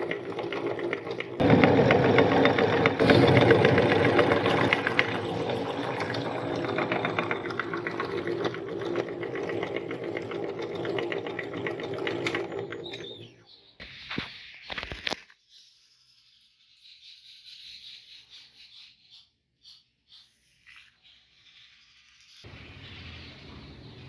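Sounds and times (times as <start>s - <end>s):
meat grinder crushing cookies: 0.0s - 13.3s.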